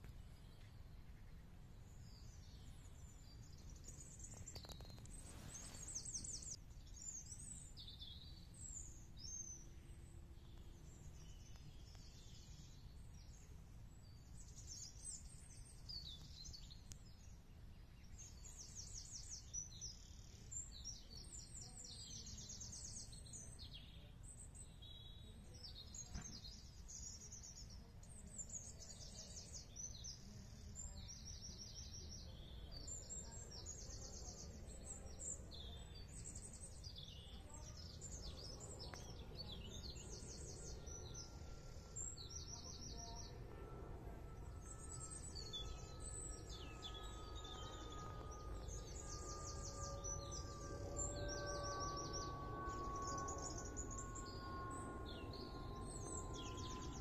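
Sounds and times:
birds singing and trilling: 0:00.0 - 0:57.0
low background rumble: 0:34.5 - 0:57.0.

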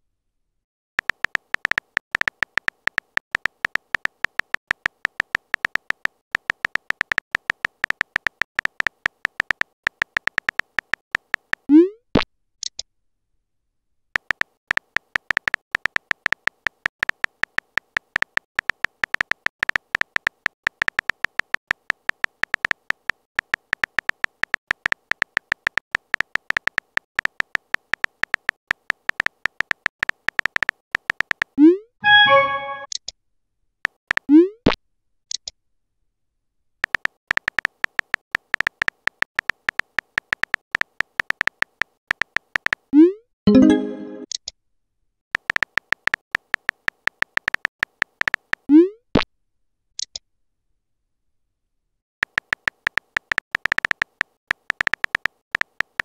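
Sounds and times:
phone keyboard clicks: 0:01.0 - 0:11.6, 0:52.2 - 0:56.0
rising message sent bloop: 0:32.0 - 0:32.9, 0:43.5 - 0:44.2.

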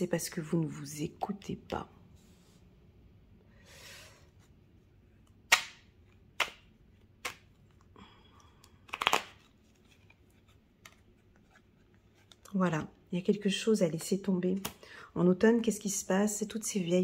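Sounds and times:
cards clicking: 0:05.3 - 0:07.8, 0:08.6 - 0:10.2
deck of cards shuffling: 0:08.8 - 0:12.6.

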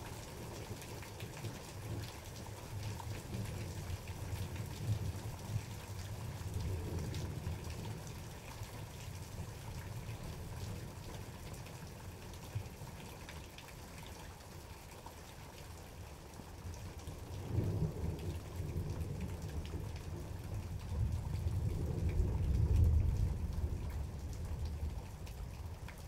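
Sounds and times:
steady rain: 0:00.0 - 0:26.0
raindrops ticking: 0:16.9 - 0:26.0.

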